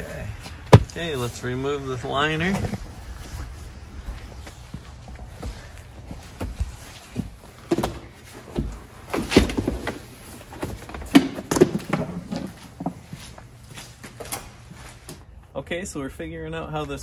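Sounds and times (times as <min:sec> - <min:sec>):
rubber mat thumping and scraping: 0:05.4 - 0:13.0.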